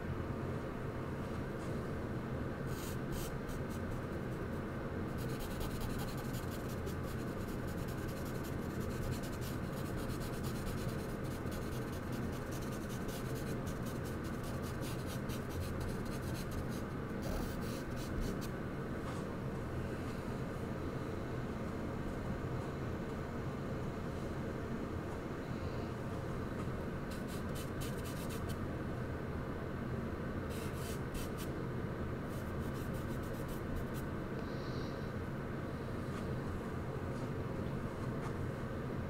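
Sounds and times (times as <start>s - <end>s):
steady low hum: 0.0s - 39.0s
charcoal scratching on paper: 5.1s - 18.5s, 27.1s - 28.6s, 32.3s - 34.0s.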